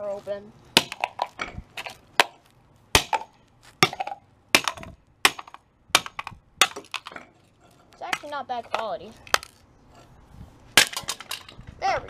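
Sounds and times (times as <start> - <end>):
plastic speaker smashed on concrete: 0.8 - 7.2, 10.8 - 11.6.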